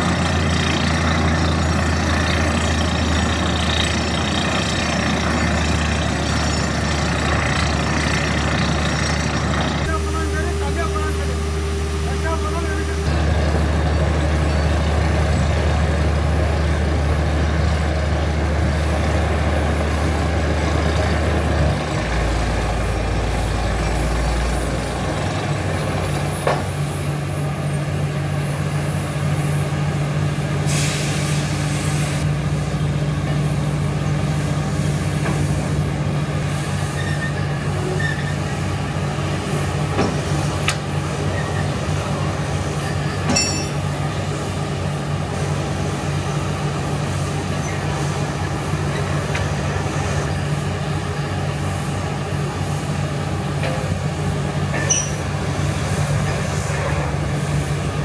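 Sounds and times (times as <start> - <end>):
drilling rig engine running: 0.0 - 58.0
compressed air blowing: 30.6 - 32.3
hissing air burst: 30.6 - 32.3.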